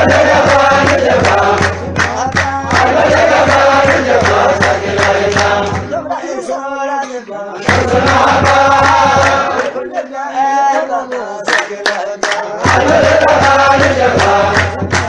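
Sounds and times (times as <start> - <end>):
percussive hits: 0.0 - 6.1, 7.6 - 9.8, 11.5 - 15.0
men singing devotional chant: 0.0 - 15.0.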